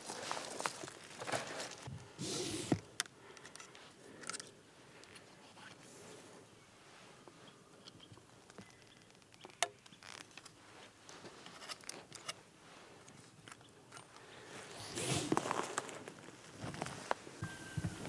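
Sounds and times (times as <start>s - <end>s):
bow and arrow clicks and scrapes: 2.2s - 4.5s
clothing rustle: 14.7s - 18.0s.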